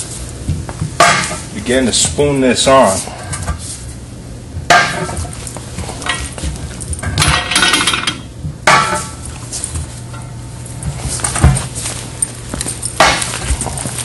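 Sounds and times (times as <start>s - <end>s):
metal bar clanking on wheel rim: 7.0s - 9.2s.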